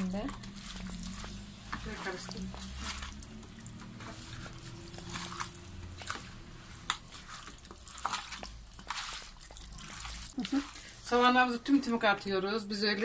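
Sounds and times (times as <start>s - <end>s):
wet squishes of hands mixing: 0.0s - 13.0s.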